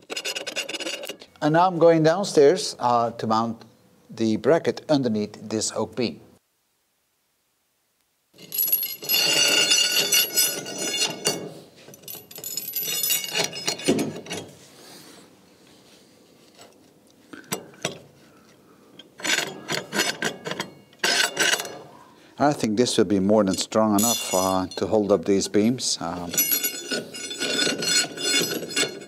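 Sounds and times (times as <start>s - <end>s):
metal rods scraping and rattling: 0.0s - 1.3s, 8.4s - 14.6s, 19.1s - 22.0s, 23.4s - 25.2s, 26.0s - 29.0s
metallic ringing: 8.4s - 14.5s, 23.5s - 25.0s, 26.2s - 29.0s
metal clinks and knocks: 8.4s - 14.6s, 17.4s - 18.1s, 19.1s - 22.0s, 23.5s - 25.0s, 26.2s - 29.0s.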